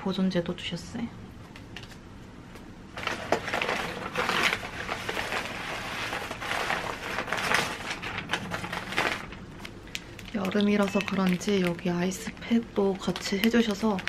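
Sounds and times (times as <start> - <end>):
paper wrapping rustling and crinkling: 3.0 - 14.0.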